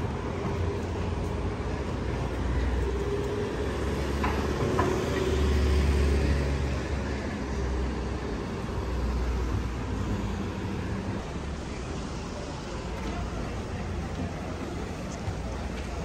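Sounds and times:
cars driving past: 0:00.0 - 0:13.3.

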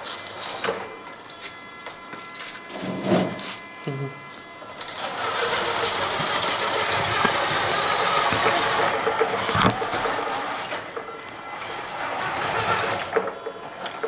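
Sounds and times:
model truck running: 0:04.2 - 0:14.0.

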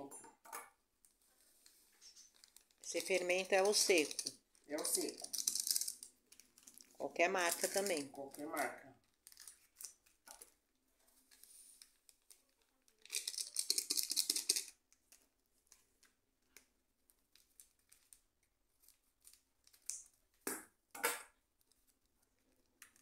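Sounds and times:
yeast sachet crinkling: 0:02.0 - 0:10.6, 0:11.3 - 0:14.8.

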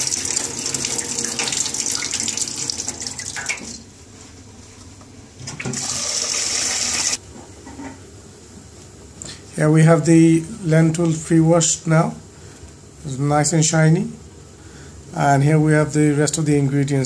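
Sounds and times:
tap water running into a pan: 0:00.0 - 0:03.8, 0:05.6 - 0:07.2.

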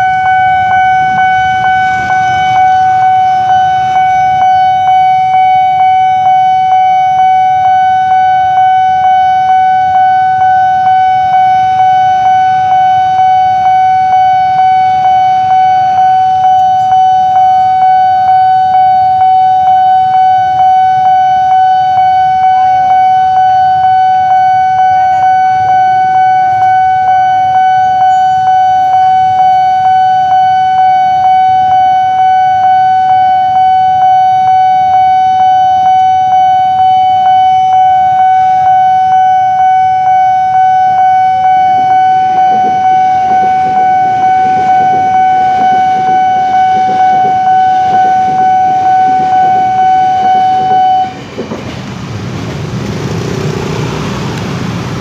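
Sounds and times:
level crossing alarm ringing: 0:00.0 - 0:52.6.

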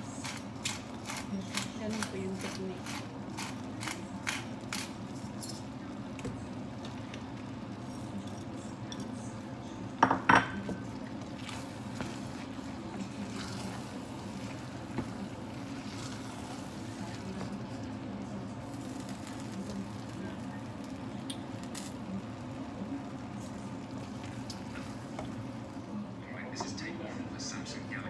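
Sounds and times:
pepper mill grinding: 0:00.2 - 0:05.7
wooden spoon scraping pot: 0:11.0 - 0:18.0.

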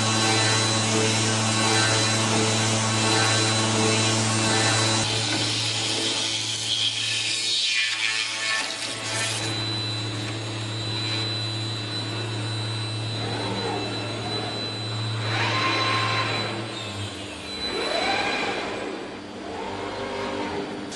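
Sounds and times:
motor whines of moving head: 0:00.0 - 0:07.0, 0:08.7 - 0:20.9
circular saw cutting: 0:00.0 - 0:09.9
machine high whine: 0:00.0 - 0:20.9
machine low hum: 0:09.4 - 0:20.9.

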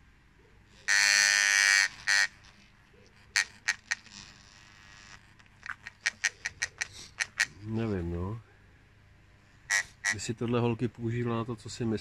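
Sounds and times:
electric massager buzzing: 0:00.7 - 0:06.6
sharp clicks: 0:05.1 - 0:07.5.

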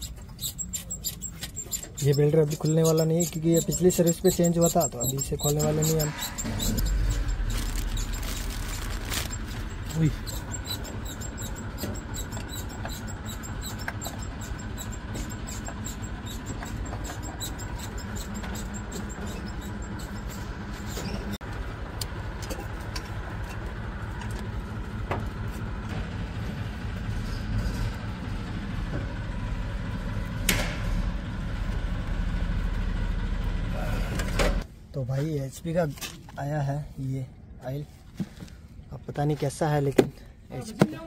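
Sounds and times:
vehicle engine rumble: 0:00.0 - 0:41.0
hand tools clinking on metal: 0:00.1 - 0:07.5.

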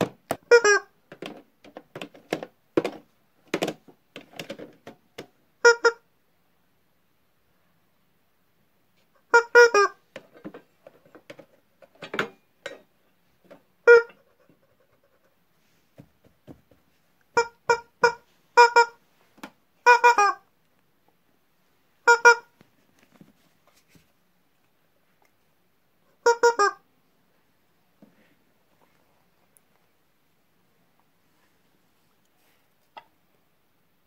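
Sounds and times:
rubber squeaky toys squeaking: 0:00.3 - 0:01.4, 0:05.6 - 0:06.0, 0:09.3 - 0:10.0, 0:13.8 - 0:14.2, 0:17.3 - 0:19.0, 0:19.8 - 0:20.4, 0:22.0 - 0:22.5, 0:26.2 - 0:26.8.

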